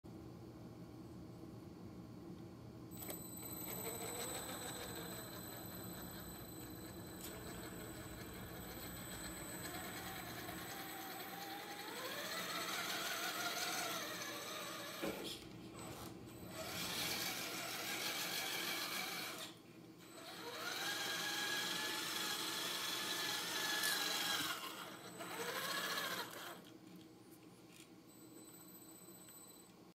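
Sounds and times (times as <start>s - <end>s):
faint high-pitched tone: 3.0s - 13.5s
electric motor whining: 3.0s - 26.7s.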